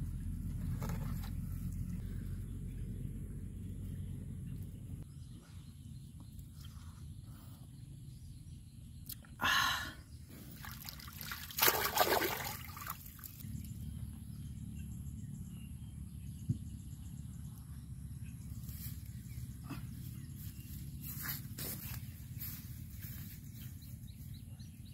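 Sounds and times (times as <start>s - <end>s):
water splashing and trickling: 10.3s - 13.4s.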